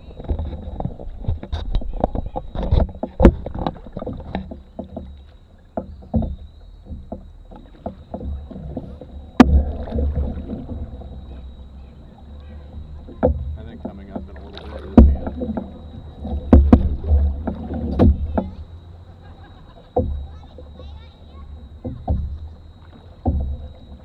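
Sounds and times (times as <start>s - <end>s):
wind rumble on microphone: 0.0s - 5.2s
paddles knocking against canoe hull: 0.0s - 24.0s.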